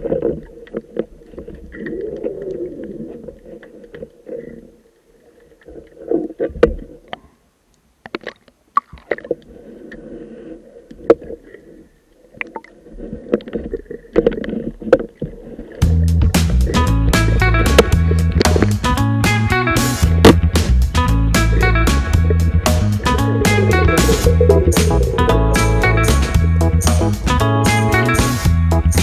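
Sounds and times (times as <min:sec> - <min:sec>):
diver exhaling air bubbles underwater: 0:22.2 - 0:26.3.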